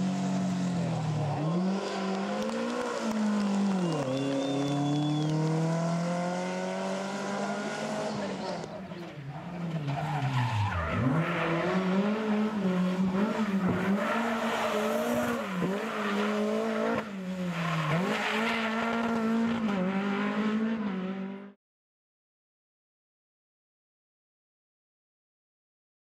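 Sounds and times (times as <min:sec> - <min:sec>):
rally car engine revving hard: 0:00.0 - 0:08.7, 0:10.8 - 0:21.6.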